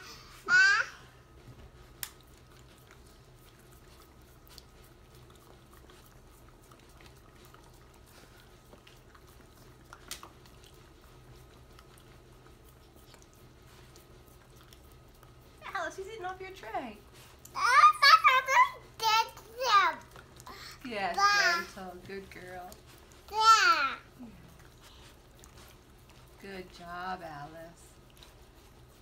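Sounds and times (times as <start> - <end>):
dog licking and smacking: 0.0 - 29.0.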